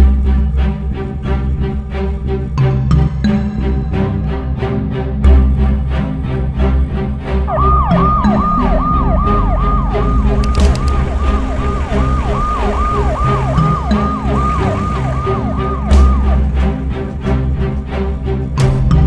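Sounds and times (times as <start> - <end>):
background music: 0.0 - 19.0
ambulance siren falling sweeps: 7.5 - 17.1.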